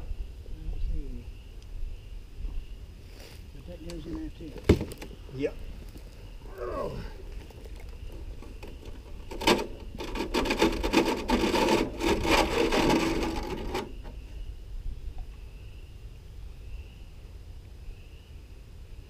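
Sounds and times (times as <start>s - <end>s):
gravel and sand scraping and rattling: 3.0s - 15.5s.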